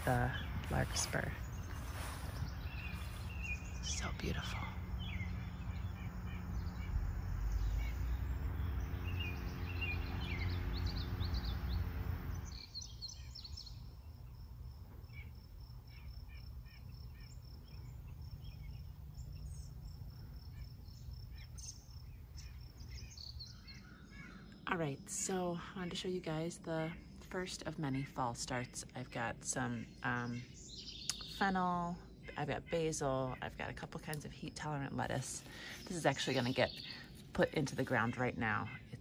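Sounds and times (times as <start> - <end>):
low rumble: 0.0 - 12.8
birds chirping and singing: 0.0 - 14.0, 15.0 - 25.3, 26.3 - 39.0.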